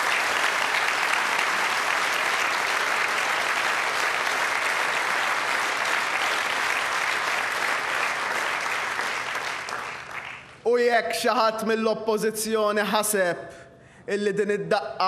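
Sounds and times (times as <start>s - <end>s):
large audience applauding: 0.0s - 10.6s.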